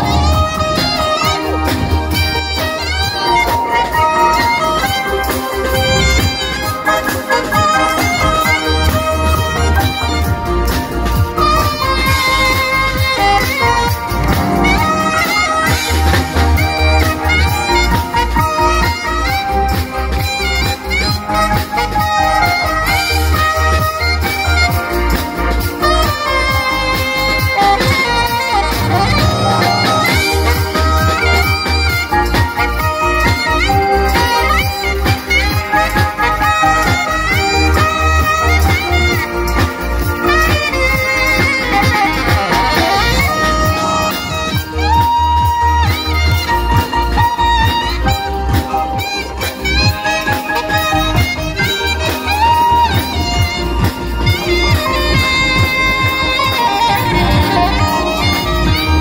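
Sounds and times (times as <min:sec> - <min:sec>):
steady bass beat: 0:00.0 - 0:18.7
alto saxophone melody: 0:00.0 - 0:59.0
congas: 0:00.0 - 0:59.0
drums: 0:00.0 - 0:59.0
hand percussion: 0:00.0 - 0:59.0
pulsing bass line: 0:00.0 - 0:59.0.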